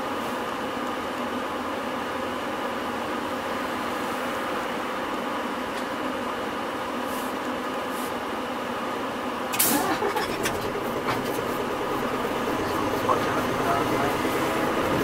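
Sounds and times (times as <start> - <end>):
bus engine drone: 0.0 - 15.0
short sharp hiss: 9.5 - 10.3.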